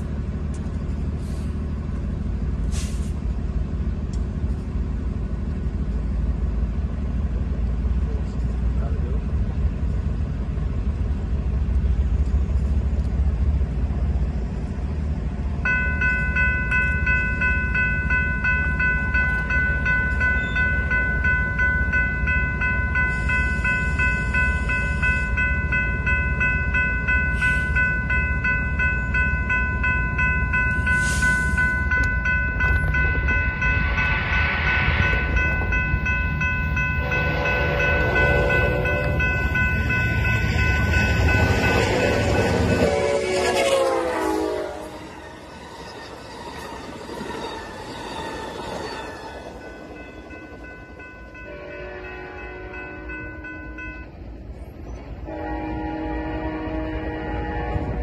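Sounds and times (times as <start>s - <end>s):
railroad crossing bell ringing: 14.4s - 58.0s
train horn: 33.7s - 35.6s, 37.0s - 39.4s, 41.1s - 45.5s, 51.4s - 53.9s, 55.2s - 58.0s.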